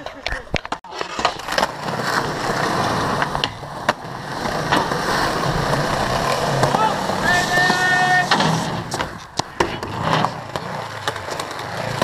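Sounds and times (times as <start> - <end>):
skateboard clacking on ground: 0.0 - 12.0
skateboard wheels rolling on concrete: 0.0 - 12.0.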